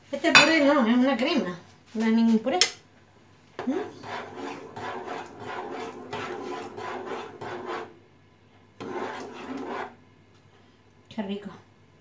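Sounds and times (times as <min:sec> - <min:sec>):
spoon scraping a pot: 0:03.6 - 0:08.0, 0:08.8 - 0:10.0.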